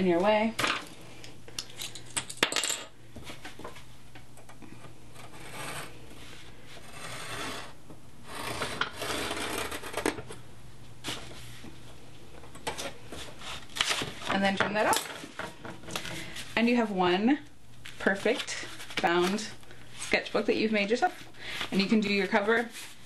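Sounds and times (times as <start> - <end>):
tool scratching along paper: 6.8 - 10.1.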